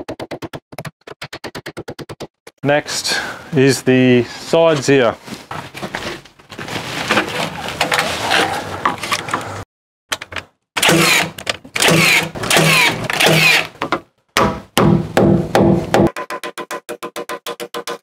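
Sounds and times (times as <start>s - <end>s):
rustling and handling noise: 4.2s - 9.6s
nail gun firing: 10.8s - 13.7s.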